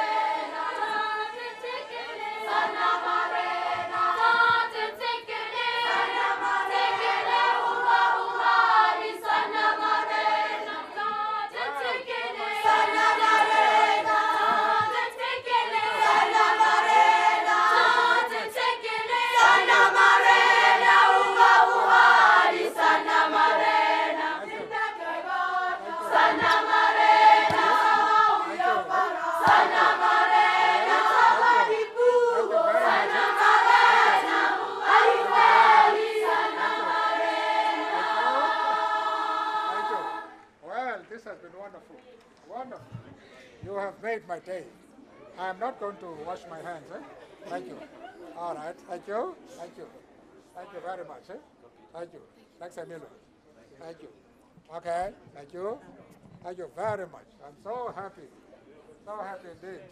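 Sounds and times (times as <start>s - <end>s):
choir singing: 0.0s - 40.5s.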